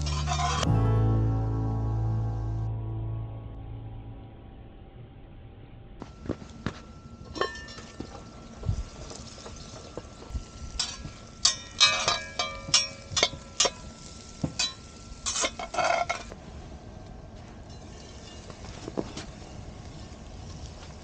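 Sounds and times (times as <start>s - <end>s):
metal clinking and clanking: 0.0s - 0.7s, 7.2s - 8.4s, 10.8s - 16.3s.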